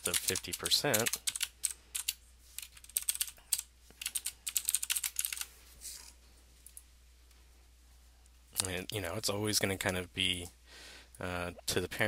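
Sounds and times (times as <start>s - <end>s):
typing on a computer keyboard: 0.0s - 5.5s.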